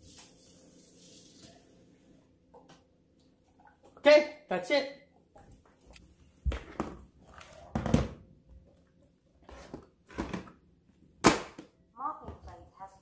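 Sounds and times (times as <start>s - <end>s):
plastic knocks on hardwood floor: 7.7s - 8.2s.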